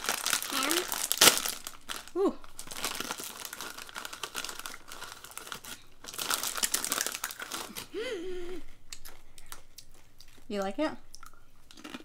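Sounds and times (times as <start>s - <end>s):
chip bag crinkling: 0.0s - 8.1s.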